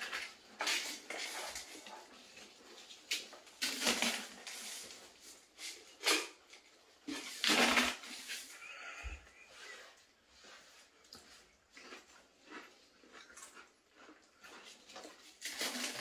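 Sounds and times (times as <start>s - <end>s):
crisps crunching while chewed: 0.0s - 16.0s
crisps rattling in cardboard tube: 15.4s - 16.0s.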